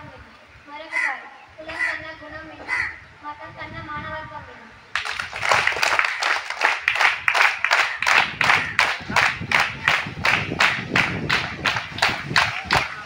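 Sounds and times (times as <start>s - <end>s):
children clapping in unison: 4.9s - 13.0s.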